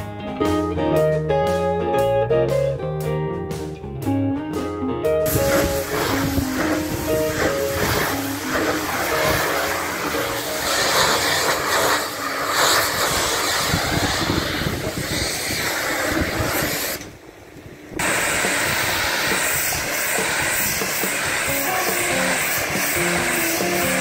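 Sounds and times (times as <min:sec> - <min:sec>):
pressure washer jet hissing: 0:05.3 - 0:17.1, 0:18.0 - 0:24.0.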